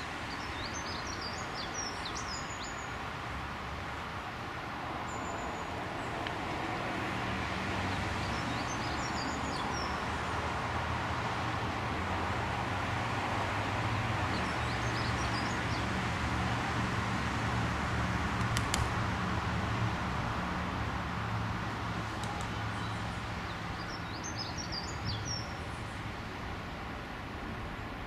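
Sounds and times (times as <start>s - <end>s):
birds chirping: 0.0s - 3.0s, 7.9s - 10.1s, 13.9s - 15.9s, 22.2s - 26.2s
outdoor noise: 0.0s - 28.0s.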